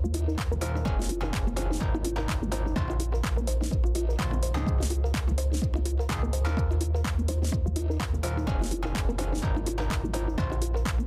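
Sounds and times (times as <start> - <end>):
electronic music with deep bass: 0.0 - 11.0.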